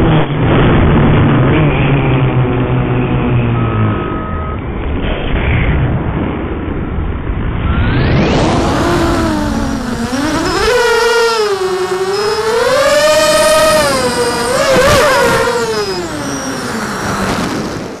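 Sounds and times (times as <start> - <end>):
quadcopter motors whining: 7.6 - 18.0.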